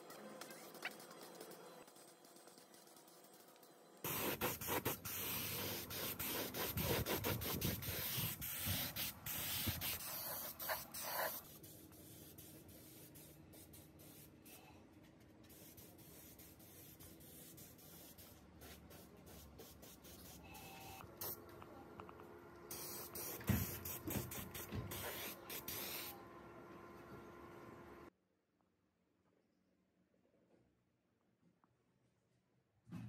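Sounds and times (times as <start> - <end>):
paint spray gun hissing: 4.1 - 14.3, 22.7 - 26.2.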